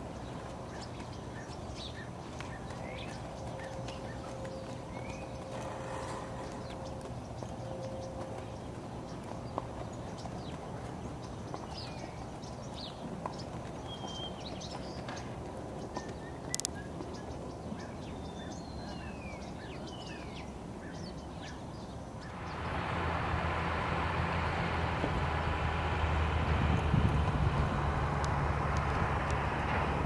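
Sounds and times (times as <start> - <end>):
small birds chirping: 0.0 - 22.7
wind noise rumble: 22.4 - 30.0.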